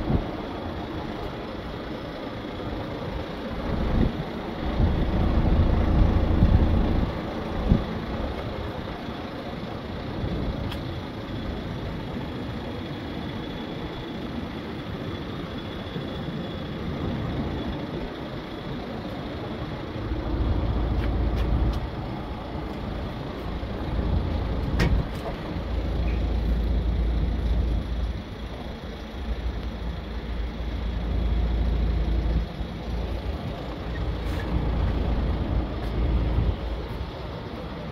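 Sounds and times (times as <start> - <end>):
heavy vehicle engine: 0.0 - 37.9
deep low rumble: 4.7 - 7.9.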